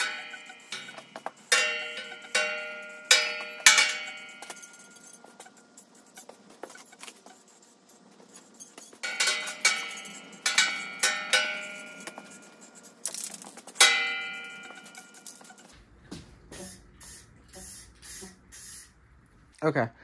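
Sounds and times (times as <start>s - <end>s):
metallic knocks on steel drum: 0.0s - 4.9s
aerosol spray can hiss: 16.6s - 18.9s.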